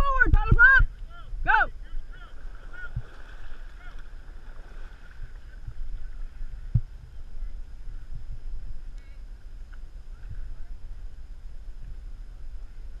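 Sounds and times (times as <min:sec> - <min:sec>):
wind rumble on microphone: 0:00.0 - 0:13.0
paddles splashing into water: 0:02.0 - 0:07.0.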